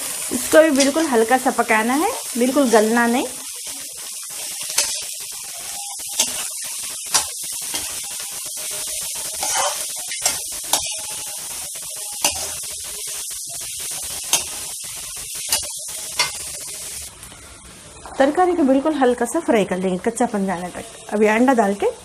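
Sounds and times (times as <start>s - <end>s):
vegetables sizzling in oil: 0.0s - 22.0s
metal spatula scraping pan: 5.8s - 8.1s, 9.2s - 12.7s, 15.4s - 16.5s.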